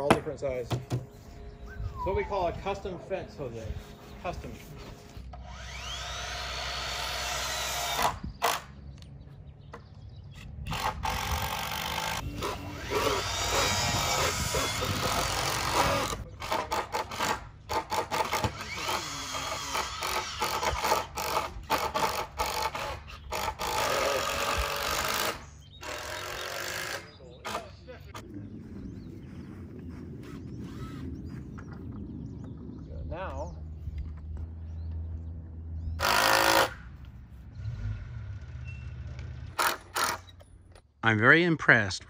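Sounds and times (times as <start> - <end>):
power drill driving screws: 5.4 - 8.7, 10.7 - 27.6, 36.0 - 36.8, 39.5 - 40.4.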